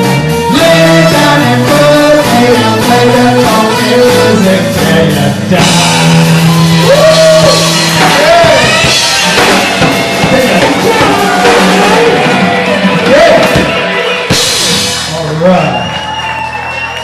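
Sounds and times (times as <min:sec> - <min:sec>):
man singing: 0:00.0 - 0:08.8, 0:10.1 - 0:13.8
drum kit: 0:00.0 - 0:17.0.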